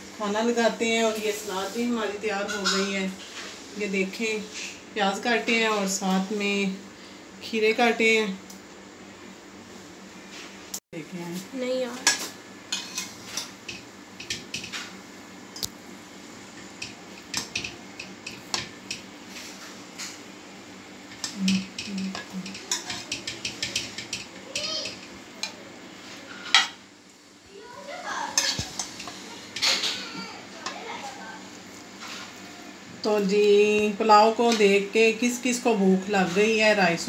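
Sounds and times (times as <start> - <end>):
metal spoon scraping pot and plate: 2.4 - 2.9, 12.1 - 13.5, 28.4 - 30.0.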